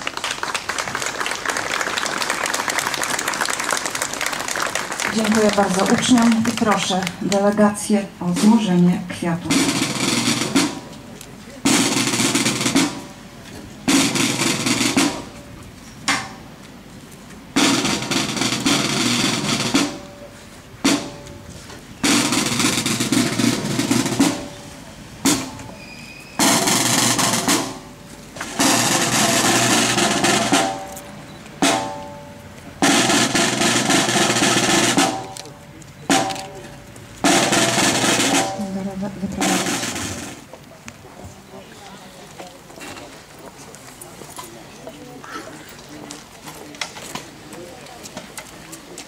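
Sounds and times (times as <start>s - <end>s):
snare drum rolls: 0.8s - 7.6s, 9.4s - 13.2s, 13.9s - 15.4s, 17.6s - 20.2s, 20.8s - 21.4s, 22.0s - 25.8s, 26.4s - 40.5s.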